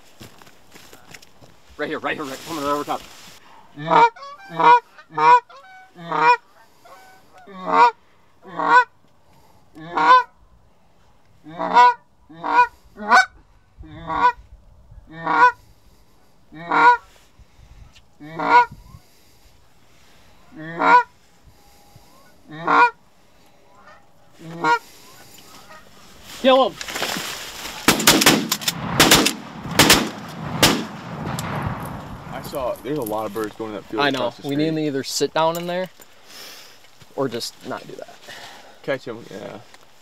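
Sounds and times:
goose call honks and clucks: 3.6 - 9.0, 9.8 - 10.4, 11.4 - 14.4, 15.0 - 15.6, 16.5 - 17.2, 18.2 - 19.0, 20.4 - 21.2, 21.8 - 23.0, 23.6 - 26.1.

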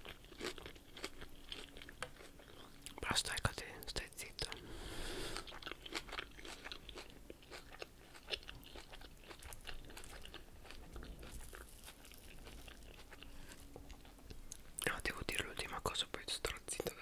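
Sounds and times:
crunchy lettuce chewing: 0.0 - 3.0, 5.2 - 14.9.

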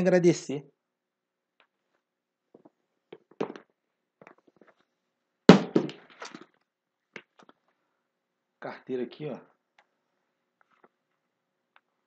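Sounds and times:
handling noises and light knocks: 1.6 - 5.0.

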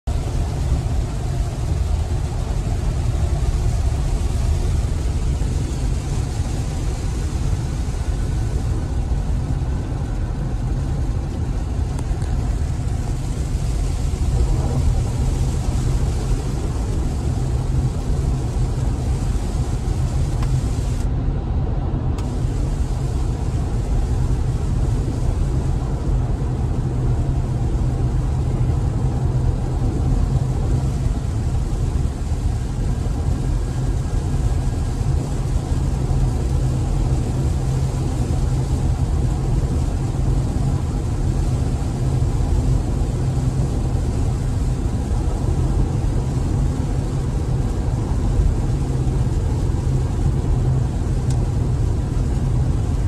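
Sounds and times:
road rumble inside car: 0.0 - 53.0
wet tyre hiss: 0.1 - 21.1, 22.2 - 53.0.

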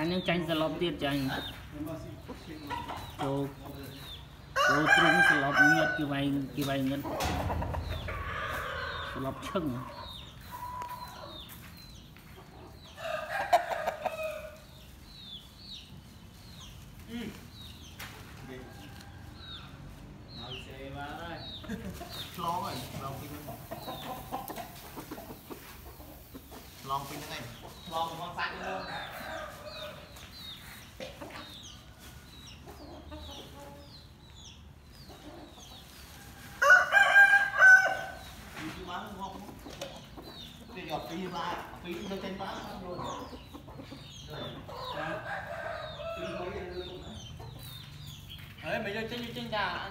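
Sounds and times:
chickens clucking: 0.0 - 49.9
rooster crowing: 4.6 - 6.0, 36.6 - 38.2.

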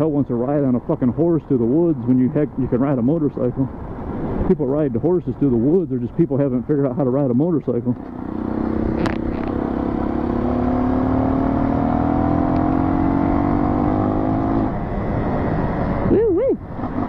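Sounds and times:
dirt bike engine accelerating: 8.1 - 14.8.

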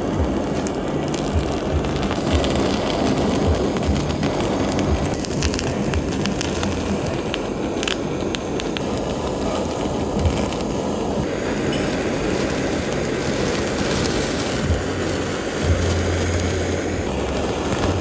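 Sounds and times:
blowtorch flame hissing: 0.0 - 18.0.

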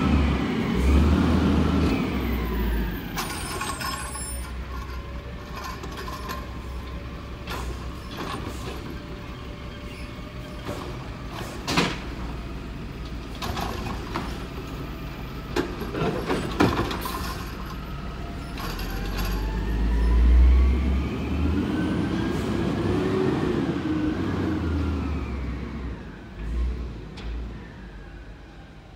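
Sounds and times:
truck engine revving: 0.0 - 3.8
knocks and clanks of cart dumping: 0.1 - 19.7.

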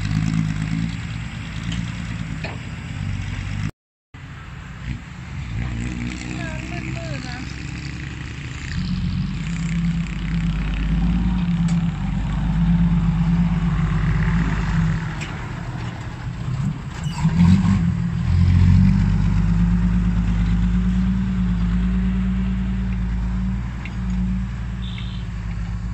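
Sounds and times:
excavator diesel engine under load: 0.0 - 3.7, 4.6 - 25.9.

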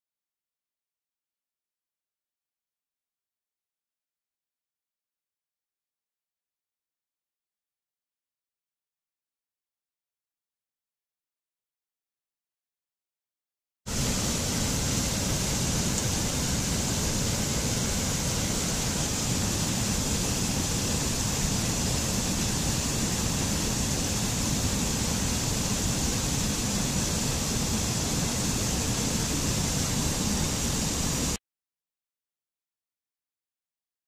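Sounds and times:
stream rushing over rocks: 13.9 - 31.4.

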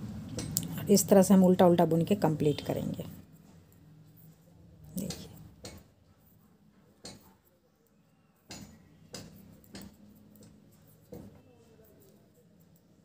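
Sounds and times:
knitting needles clicking: 4.9 - 5.9, 8.5 - 11.3.

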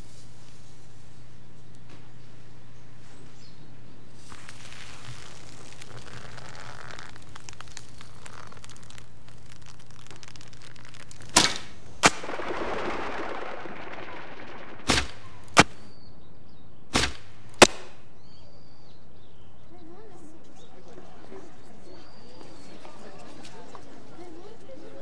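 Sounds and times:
soft rush of noise: 0.0 - 15.9
bowstring crack on release: 4.9 - 11.8
arrow striking target: 11.3 - 15.9, 16.9 - 18.1.

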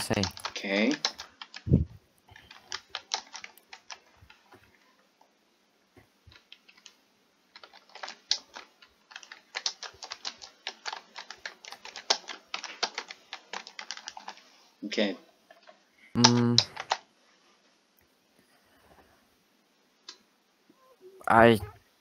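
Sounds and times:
typing on computer keyboard: 0.0 - 4.6, 6.3 - 14.5, 15.6 - 17.0.

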